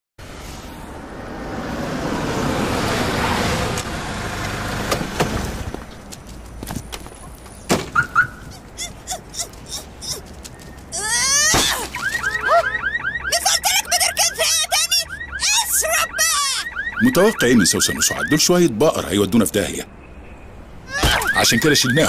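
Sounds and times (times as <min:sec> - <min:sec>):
car driving past: 0:00.2 - 0:05.8
car alarm chirps: 0:07.9 - 0:08.4, 0:12.0 - 0:18.5, 0:20.0 - 0:22.0.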